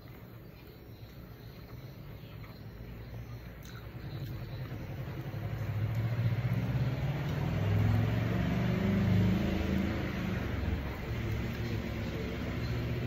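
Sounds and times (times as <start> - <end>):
vehicle engine rumble: 0.1 - 13.0.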